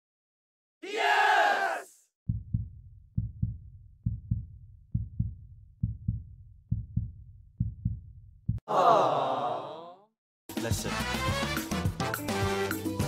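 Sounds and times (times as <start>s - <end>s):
heartbeat thumps: 2.3s - 8.6s.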